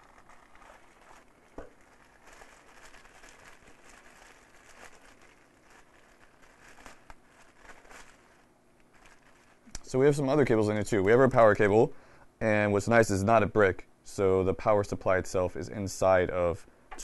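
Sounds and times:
cardboard packaging rustling: 0.0 - 11.4
plastic bag crinkling: 0.0 - 11.7.

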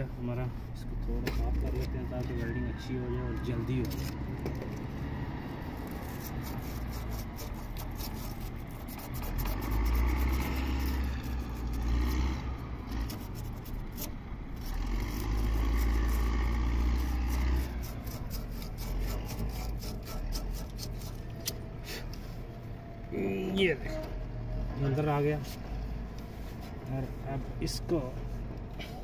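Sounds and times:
scraping copper pipe: 3.6 - 4.9, 5.6 - 22.2.

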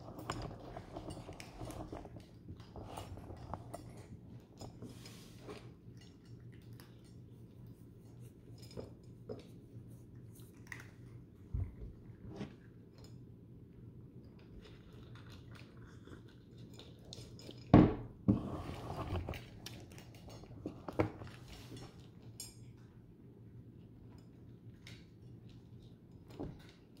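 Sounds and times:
cat crunching dry kibble: 0.0 - 4.5, 14.4 - 17.7.

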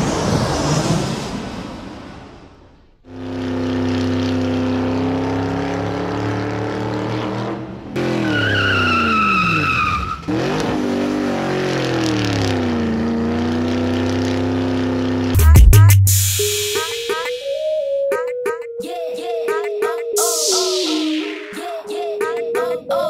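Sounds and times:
racing car engine: 3.1 - 15.4
tyre squeal: 8.2 - 10.4.

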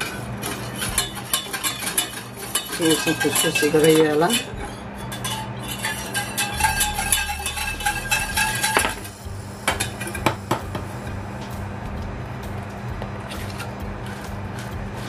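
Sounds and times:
whisk clicking against metal pan: 0.0 - 4.5.

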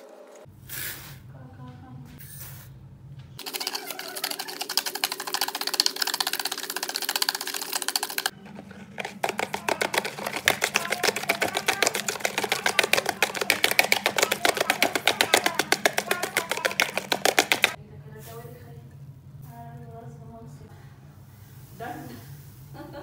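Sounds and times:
hand whisk ticking against bowl: 3.4 - 8.3, 9.0 - 17.8.

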